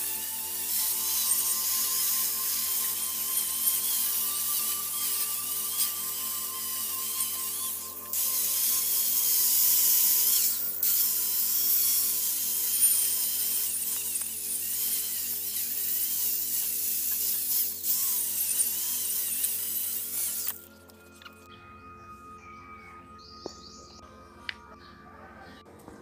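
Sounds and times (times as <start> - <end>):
angle grinder on metal: 0.0 - 20.7.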